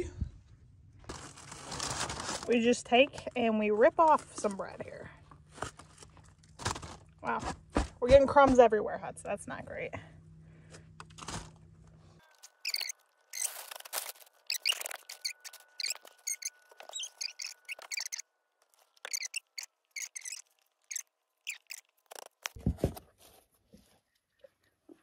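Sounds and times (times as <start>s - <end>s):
crusty bread crackling as torn: 1.1s - 2.5s, 12.3s - 22.6s.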